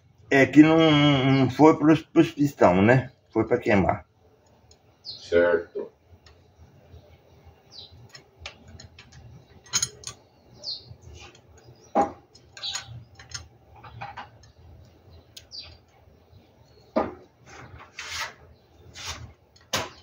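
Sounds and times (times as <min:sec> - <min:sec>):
metal fittings and tools clicking: 0:08.0 - 0:10.2, 0:12.3 - 0:14.6.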